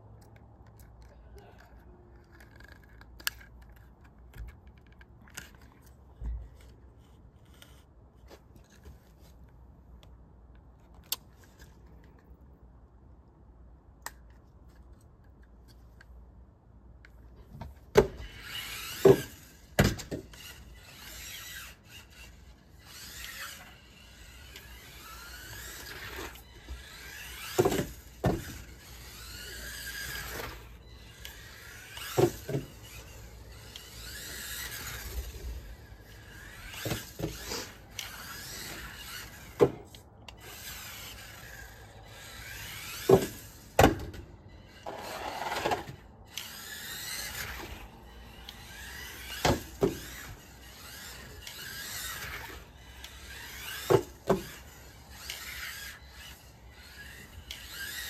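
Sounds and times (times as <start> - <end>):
rc car motor whining: 17.3 - 58.0
toy car crashing knocks: 17.9 - 20.5, 25.0 - 30.7, 31.3 - 33.3, 42.1 - 44.2, 48.6 - 55.9.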